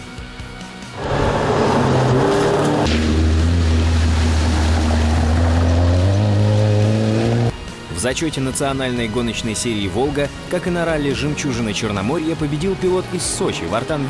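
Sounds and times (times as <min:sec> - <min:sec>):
water splashing: 0:01.0 - 0:07.5
rally car engine revving: 0:01.0 - 0:07.6.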